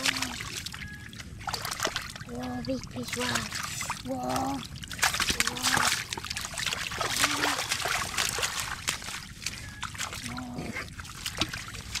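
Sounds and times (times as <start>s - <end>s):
muddy water splashing: 0.0s - 12.0s.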